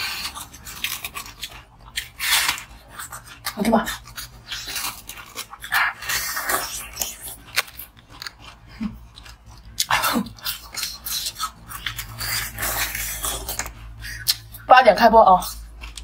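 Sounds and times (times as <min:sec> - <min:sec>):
crunching ice treat: 0:00.0 - 0:14.4.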